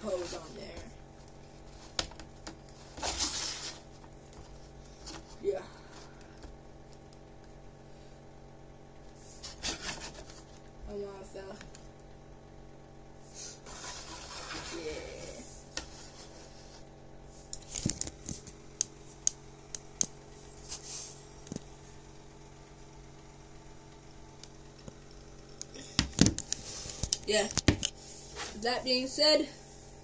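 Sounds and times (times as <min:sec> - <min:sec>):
plastic rustling scrape: 0:02.6 - 0:05.4, 0:09.2 - 0:10.6, 0:13.3 - 0:18.6, 0:20.5 - 0:21.3, 0:26.5 - 0:27.4.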